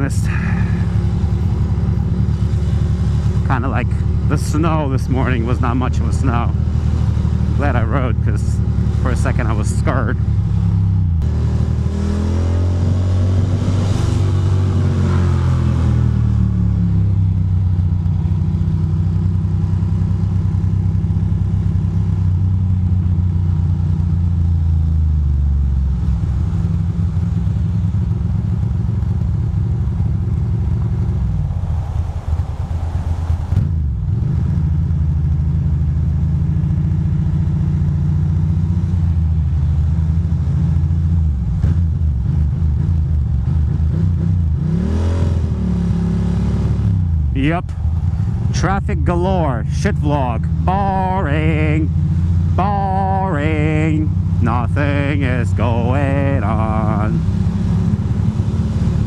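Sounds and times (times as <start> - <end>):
motorcycle engine running: 0.0 - 32.2, 33.6 - 44.6, 46.0 - 59.0.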